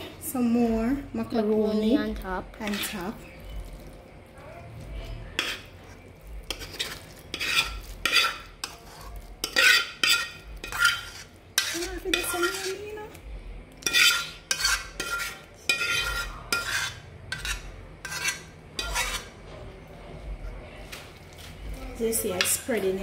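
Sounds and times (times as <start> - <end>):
metal spoon scraping metal pot: 2.5 - 3.9, 5.2 - 13.2, 13.8 - 19.4.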